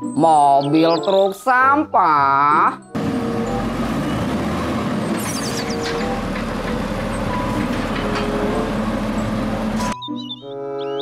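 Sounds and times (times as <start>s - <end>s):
garbage truck engine running: 2.9s - 10.0s
truck arm lifting cart: 3.0s - 10.0s
high chirps: 5.1s - 6.3s, 9.8s - 11.0s.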